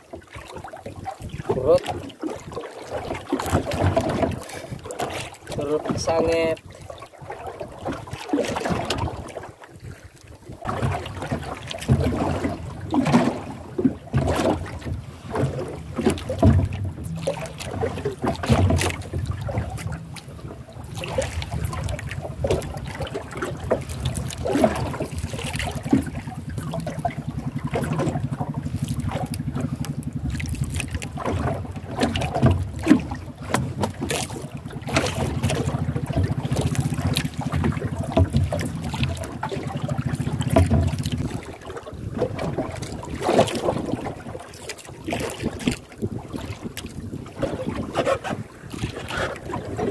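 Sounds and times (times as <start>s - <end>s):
water slapping against boat: 0.0s - 49.9s
wind buffeting microphone: 0.6s - 49.9s
low pulsing engine drone: 15.4s - 41.5s.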